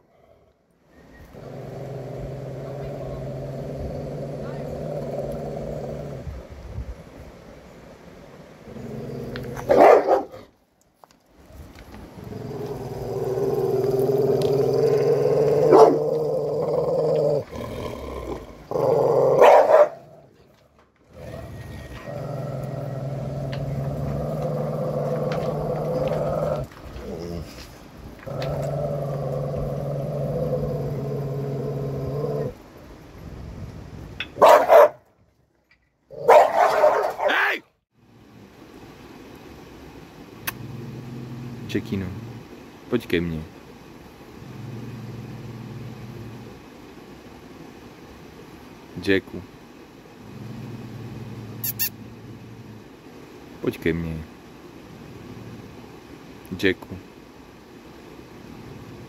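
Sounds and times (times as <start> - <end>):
dog growling: 1.3 - 6.4, 8.6 - 10.5, 11.9 - 32.6, 40.4 - 42.5, 44.4 - 46.6, 50.2 - 52.9
dog barking: 9.7 - 10.4, 15.7 - 16.0, 19.4 - 20.0, 34.4 - 35.0, 36.3 - 37.4.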